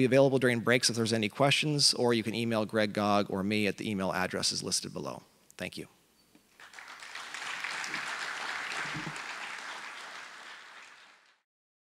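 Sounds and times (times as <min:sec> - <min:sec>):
audience applauding: 0:06.6 - 0:11.4.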